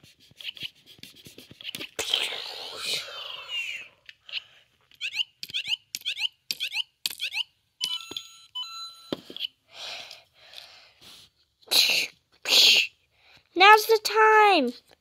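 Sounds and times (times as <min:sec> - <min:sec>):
electronic toy chirps: 0:05.0 - 0:09.5.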